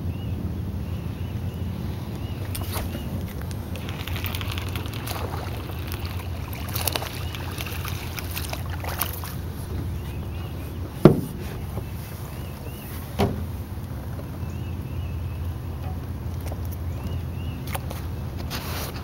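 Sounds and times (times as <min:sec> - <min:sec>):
steady low hum: 0:00.0 - 0:18.4
knocks on aluminum boat: 0:11.0 - 0:11.9, 0:13.2 - 0:13.5.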